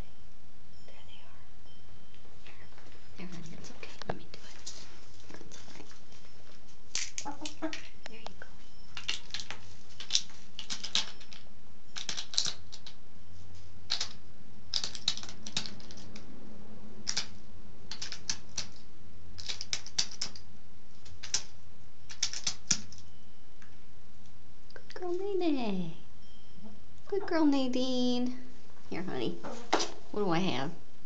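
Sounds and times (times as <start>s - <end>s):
hen beak pecking clicks: 12.0s - 12.9s, 13.9s - 16.2s, 17.1s - 17.3s, 17.9s - 18.8s, 19.4s - 20.4s, 22.1s - 23.0s.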